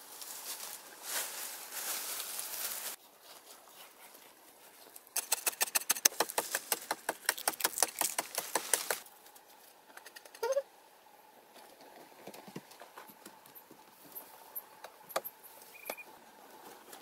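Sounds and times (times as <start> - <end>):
rapid sharp clicks: 5.2 - 9.0
short squeak: 15.7 - 16.1.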